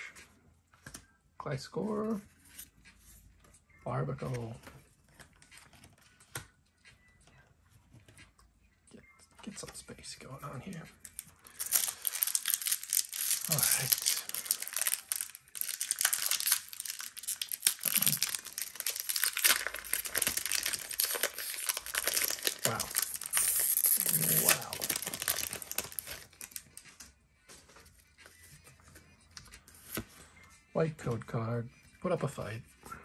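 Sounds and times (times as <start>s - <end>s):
faint card handling: 0.0s - 1.2s
foil wrapper crinkling and tearing: 11.0s - 26.8s.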